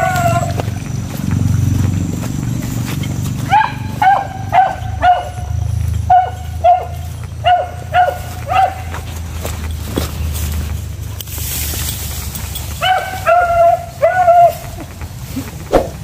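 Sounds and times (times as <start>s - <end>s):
dog barking: 0.0s - 0.7s, 3.4s - 9.2s, 12.8s - 14.7s.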